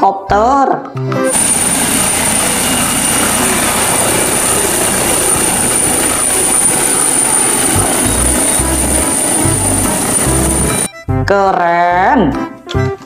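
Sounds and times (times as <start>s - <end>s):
helicopter rotor and turbine noise: 1.2s - 10.9s
high turbine whine: 1.3s - 10.9s.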